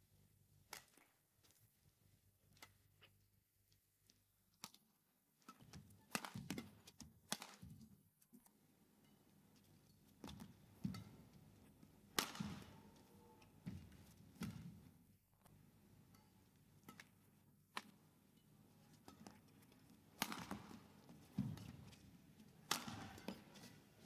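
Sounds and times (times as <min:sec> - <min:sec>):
rackets hitting shuttlecock: 0:10.2 - 0:11.4, 0:12.1 - 0:14.8, 0:16.8 - 0:18.0, 0:20.2 - 0:21.9, 0:22.6 - 0:23.8.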